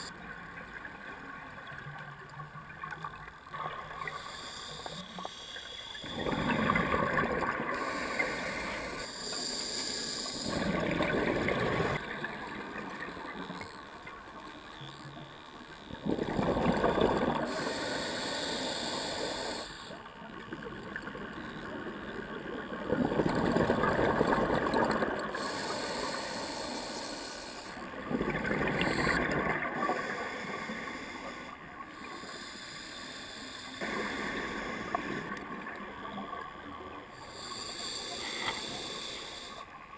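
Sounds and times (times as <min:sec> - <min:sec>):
regulator hiss: 0:04.0 - 0:07.1, 0:07.7 - 0:12.0, 0:17.1 - 0:20.1, 0:24.6 - 0:28.1, 0:28.7 - 0:36.2, 0:37.2 - 0:39.8
exhaled bubbles gushing: 0:16.0 - 0:17.4, 0:28.0 - 0:30.0.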